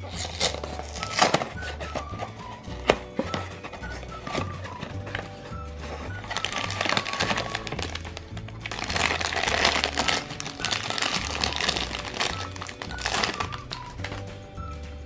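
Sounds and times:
foil bag crinkling and tearing: 0.0 - 2.1, 6.0 - 14.3
background music with bass line: 0.0 - 15.0.

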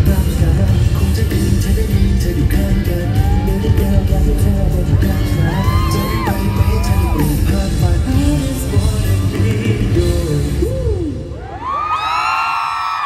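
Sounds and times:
man singing over a band: 0.0 - 11.4
fans screaming: 2.8 - 7.8, 10.8 - 13.0.

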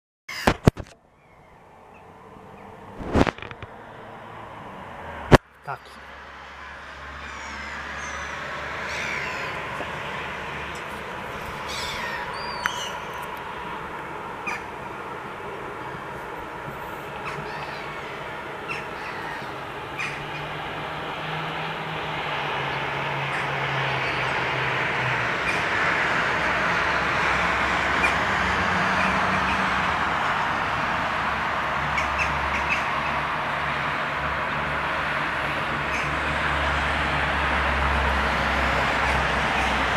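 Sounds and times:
urban traffic hum: 0.3 - 39.9
gulls calling: 7.1 - 20.8, 25.4 - 25.8, 31.8 - 33.2, 35.8 - 36.3
gull cries: 7.2 - 9.6, 11.6 - 13.0, 17.2 - 20.5.

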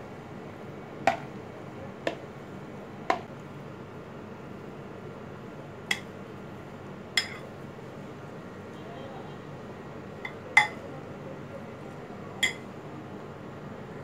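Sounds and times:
metal spoon clinking on dishes: 7.2 - 7.4, 10.2 - 10.8, 12.4 - 12.6.

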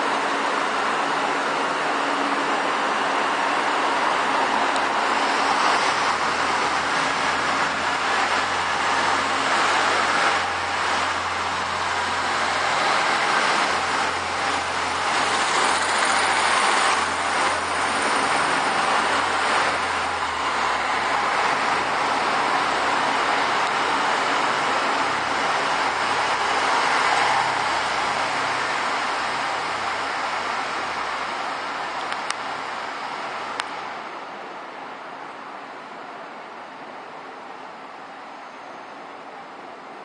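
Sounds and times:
train wheels rumbling on rails: 0.0 - 36.0.

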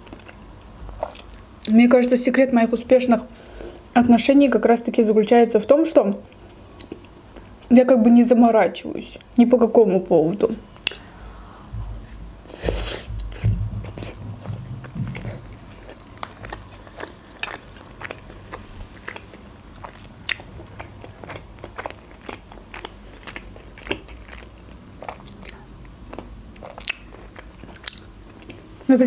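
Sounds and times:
person chewing with mouth clicks: 0.0 - 1.7, 6.1 - 7.7, 10.8 - 28.8
low thumps: 11.3 - 16.6.

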